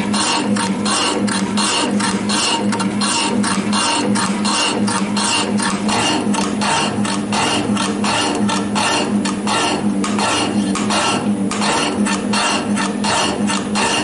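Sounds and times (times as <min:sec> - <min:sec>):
machine motor hum: 0:00.0 - 0:14.0
metal shaper tool rasping: 0:00.0 - 0:14.0.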